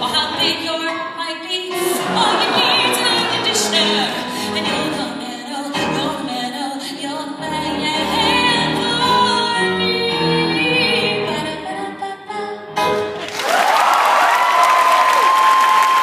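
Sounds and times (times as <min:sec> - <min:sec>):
woman singing into a microphone: 0:00.0 - 0:13.0
grand piano: 0:00.0 - 0:13.6.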